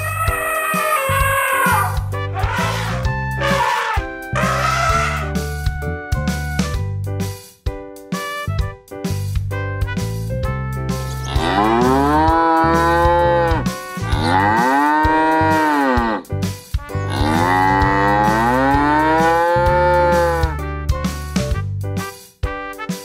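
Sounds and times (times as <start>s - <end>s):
cow mooing: 1.1s - 5.3s, 11.2s - 16.3s, 17.1s - 20.5s
quiet background music: 11.0s - 16.3s, 16.9s - 20.5s.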